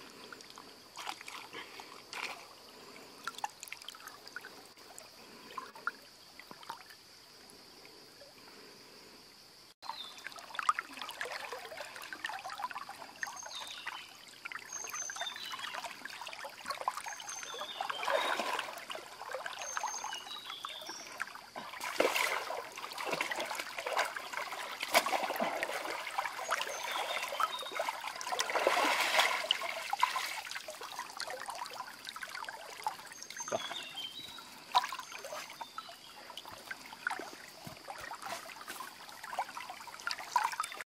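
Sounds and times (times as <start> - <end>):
water splashing from wading: 10.1 - 40.8.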